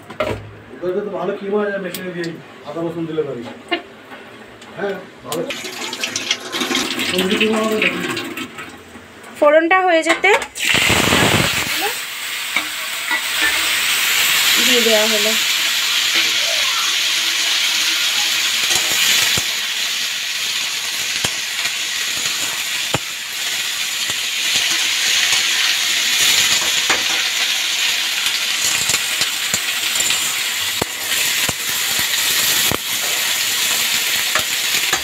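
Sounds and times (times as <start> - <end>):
vegetables sizzling in hot oil: 5.4 - 8.0, 10.3 - 35.0
spatula scraping metal pan: 12.6 - 13.8.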